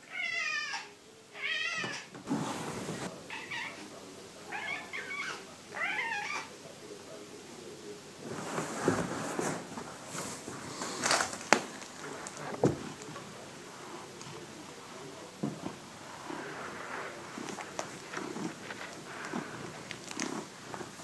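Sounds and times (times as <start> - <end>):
cat meowing: 0.0 - 2.1, 3.3 - 3.9, 4.5 - 6.5
rustling: 1.9 - 3.9, 8.2 - 21.0.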